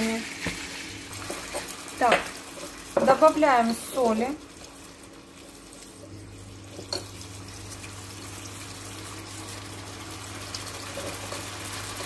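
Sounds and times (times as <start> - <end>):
meat sizzling in frying pan: 0.0 - 12.0.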